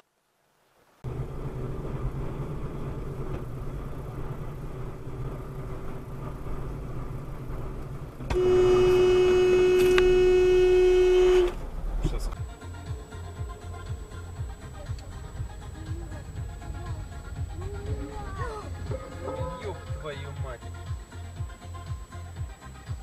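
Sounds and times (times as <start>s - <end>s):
car engine and tyre rumble: 0.5s - 23.0s
vehicle horn blast: 8.3s - 11.6s.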